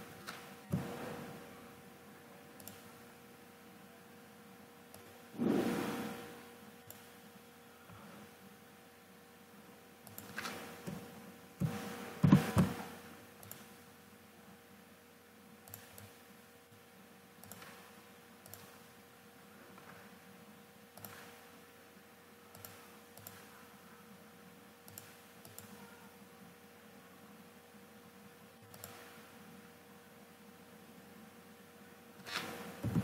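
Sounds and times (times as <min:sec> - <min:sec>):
faint steady hum: 0:00.0 - 0:33.0
computer mouse clicks: 0:02.6 - 0:02.9, 0:06.8 - 0:07.2, 0:10.0 - 0:11.0, 0:13.4 - 0:13.8, 0:15.6 - 0:16.2, 0:17.4 - 0:18.8, 0:21.0 - 0:21.4, 0:22.5 - 0:23.5, 0:24.8 - 0:26.0, 0:28.6 - 0:29.2.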